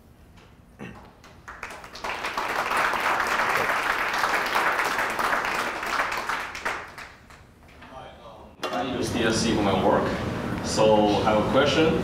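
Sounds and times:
audience applauding: 1.2 - 7.5.

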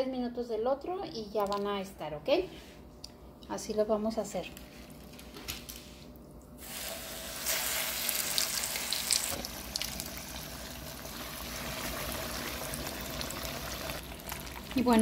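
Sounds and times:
fish frying in hot oil: 6.7 - 15.0.

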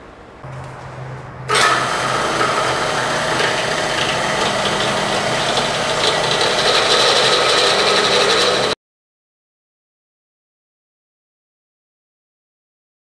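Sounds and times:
drill press whining: 1.5 - 8.8.

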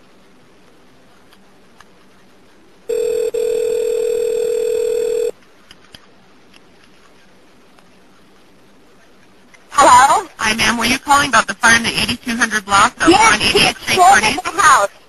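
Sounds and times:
phone line hiss: 2.9 - 5.4
telephone ring tone: 2.9 - 5.4.

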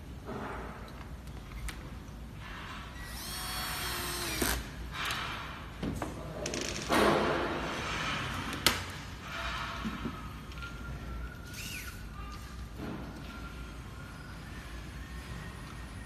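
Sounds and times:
electric screwdriver whirring: 3.1 - 4.7.

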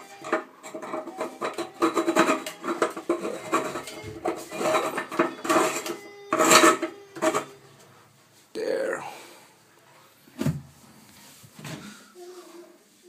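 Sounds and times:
plastic scraping and clicking: 0.0 - 7.5.

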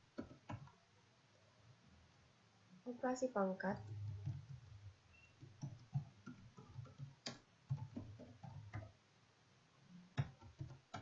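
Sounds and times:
computer keyboard typing: 0.2 - 0.8, 3.8 - 9.0, 10.2 - 11.0.

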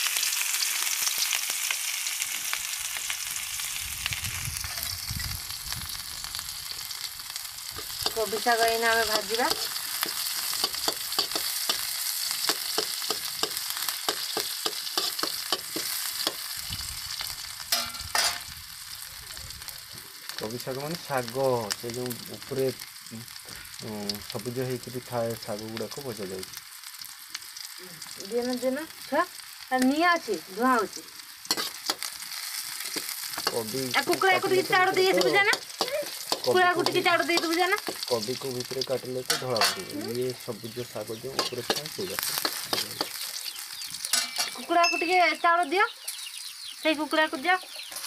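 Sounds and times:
greens sizzling in a wok: 0.0 - 48.0
metal spatula scraping a pan: 8.9 - 16.5, 17.7 - 18.5, 31.5 - 38.3, 39.2 - 39.9, 41.3 - 43.2, 44.1 - 45.1
spatula scraping metal pan: 31.5 - 32.1
person speaking: 33.4 - 43.1.

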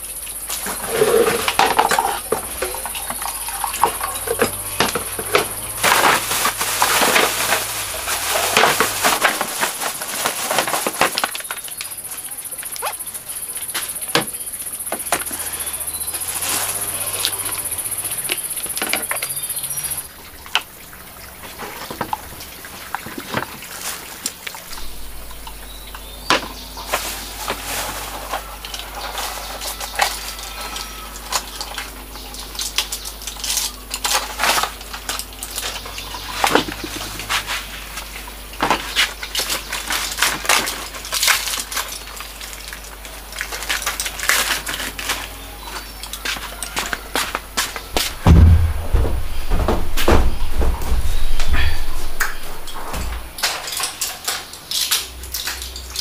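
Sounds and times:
steady high hiss: 0.0 - 29.0, 47.4 - 56.0
low hum: 24.5 - 27.4, 47.9 - 54.0
irregular clicks and knocks: 47.6 - 56.0.

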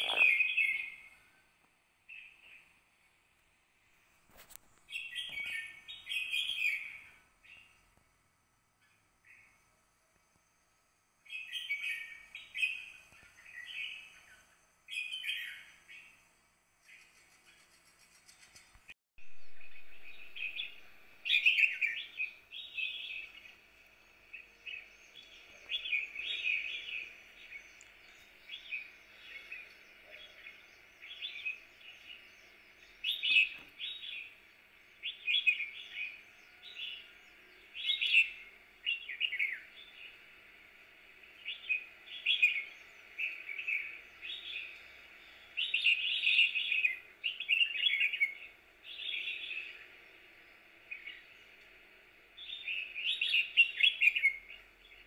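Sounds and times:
small songbirds chirping: 0.0 - 55.0
faint steady hiss: 19.2 - 55.0.

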